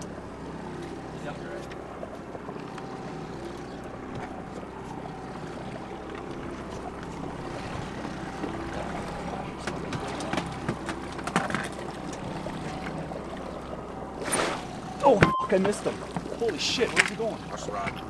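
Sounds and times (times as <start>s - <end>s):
boat engine humming: 0.0s - 18.0s
fish splashing at surface: 14.2s - 14.8s.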